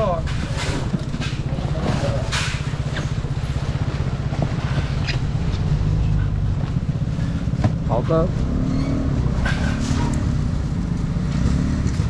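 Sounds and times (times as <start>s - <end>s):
motor running with low rumble: 0.2s - 12.0s.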